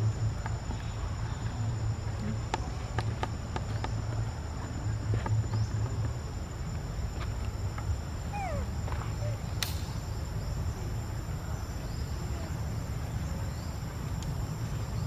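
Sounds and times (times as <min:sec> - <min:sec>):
insects droning: 0:00.0 - 0:15.0
sharp click: 0:09.6 - 0:10.0.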